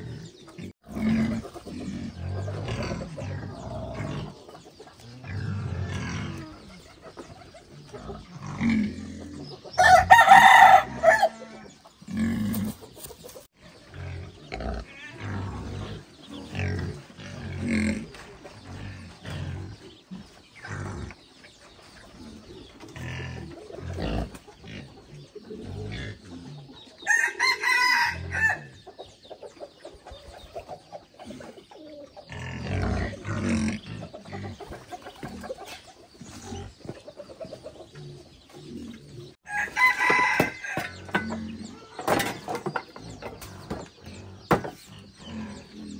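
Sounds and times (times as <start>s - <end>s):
rooster crowing: 9.8s - 11.5s, 27.1s - 28.7s, 39.4s - 40.9s.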